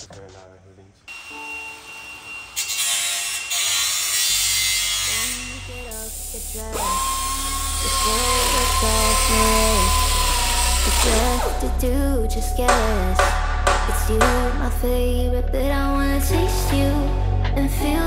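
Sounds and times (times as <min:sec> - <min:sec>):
pneumatic tool cutting steel: 0:01.1 - 0:11.6
background music with bass: 0:05.5 - 0:18.0.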